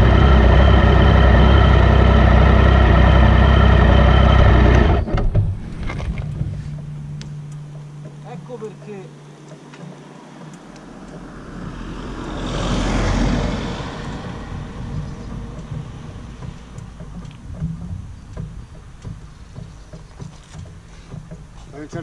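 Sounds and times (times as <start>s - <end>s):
car driving past: 9.6s - 18.8s.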